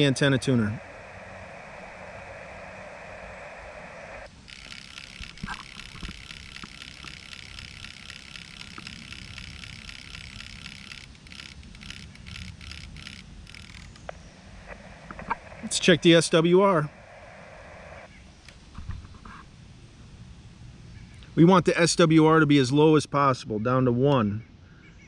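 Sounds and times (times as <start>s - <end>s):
radio receiver hiss: 0.0s - 19.4s
higher steady hiss: 0.0s - 23.6s
sharp relay clicks: 4.3s - 14.2s.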